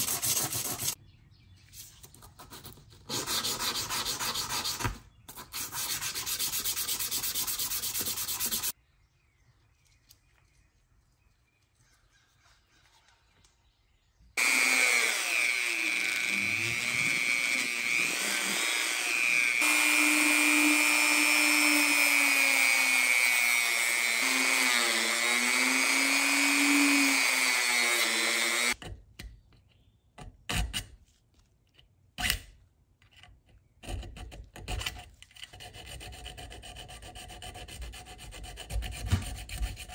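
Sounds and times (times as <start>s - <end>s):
rubbing or sanding: 0.0s - 1.0s, 1.8s - 8.7s, 35.5s - 39.9s
power tool whining: 14.4s - 28.8s.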